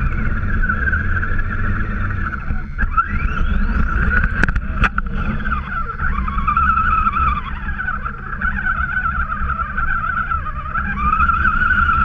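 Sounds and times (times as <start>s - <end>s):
toy truck motor whine: 0.0s - 12.0s.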